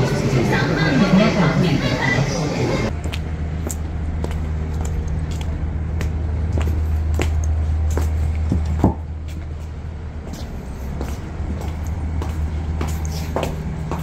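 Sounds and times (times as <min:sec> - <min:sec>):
low vehicle rumble: 0:00.0 - 0:14.0
footsteps on tiles: 0:02.9 - 0:14.0.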